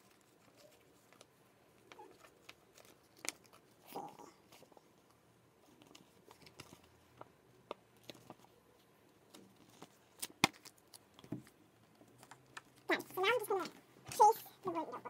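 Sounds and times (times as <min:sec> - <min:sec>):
faint clicks and taps: 0:04.5 - 0:14.4.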